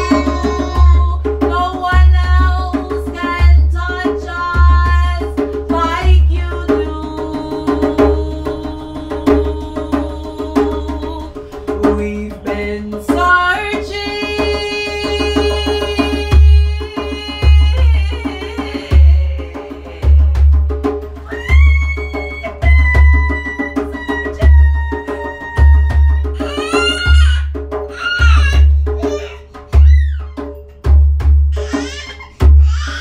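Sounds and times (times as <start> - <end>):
person singing: 0.0 - 20.4, 21.3 - 27.3
djembe drumming: 0.0 - 33.0.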